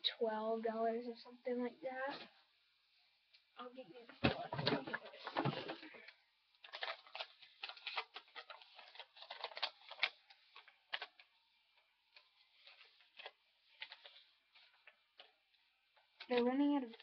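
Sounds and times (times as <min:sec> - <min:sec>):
paper crinkling and rustling: 0:04.2 - 0:17.0.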